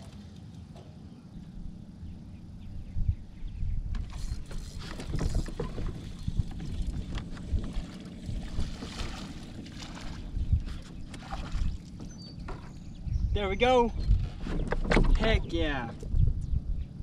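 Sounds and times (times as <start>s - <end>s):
wind buffeting microphone: 1.4s - 17.0s
fishing reel cranking: 4.1s - 5.6s
knocks against boat: 11.2s - 12.8s, 14.4s - 15.5s.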